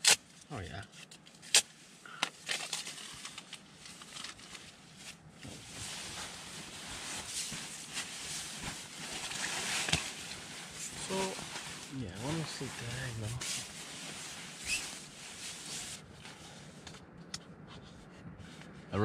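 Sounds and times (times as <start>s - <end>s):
sharp clicks and crinkles: 0.9s - 5.2s
sleeping bag fabric rustling: 4.9s - 16.5s.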